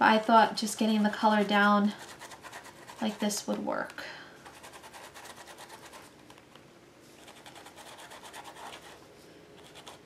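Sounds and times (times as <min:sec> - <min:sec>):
brush scrubbing on paper: 0:00.6 - 0:03.4, 0:04.5 - 0:06.1, 0:07.2 - 0:09.0.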